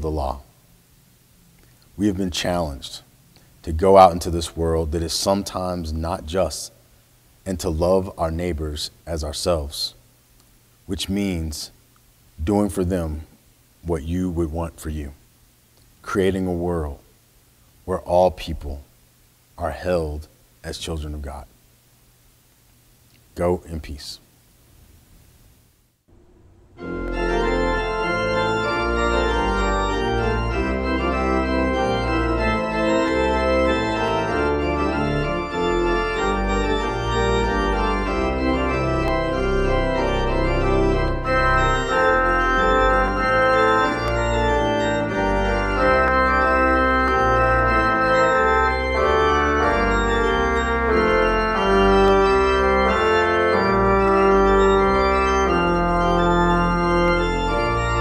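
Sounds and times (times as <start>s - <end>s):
organ chords over deep bass: 0.0s - 0.4s, 26.1s - 58.0s.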